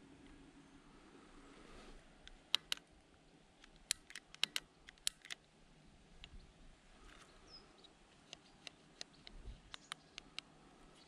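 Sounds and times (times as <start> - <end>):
bike handlebar controls clicking: 2.3 - 2.9, 3.6 - 5.4.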